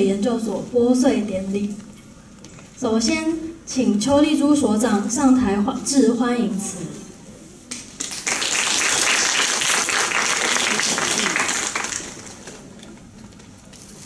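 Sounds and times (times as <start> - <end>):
audience applauding: 8.0 - 12.6.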